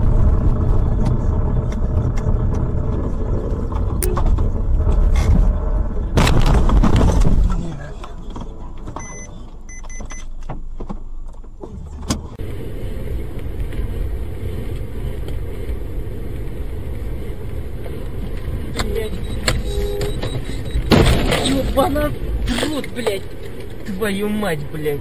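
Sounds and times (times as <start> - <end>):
car engine and tyres rumbling: 0.0 - 25.0
short high beeps: 9.0 - 10.2, 18.9 - 20.9.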